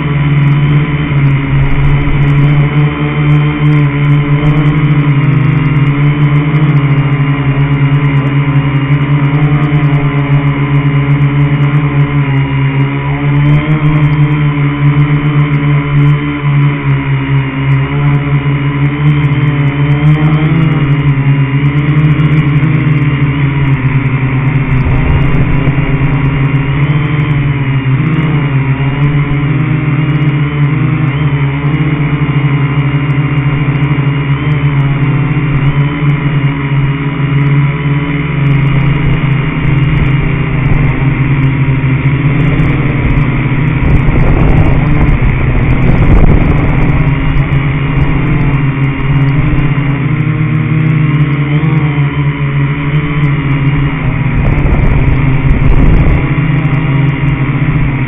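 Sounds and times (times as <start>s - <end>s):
rc car motor whining: 0.0s - 58.0s
wheels rumbling over dirt: 0.0s - 58.0s.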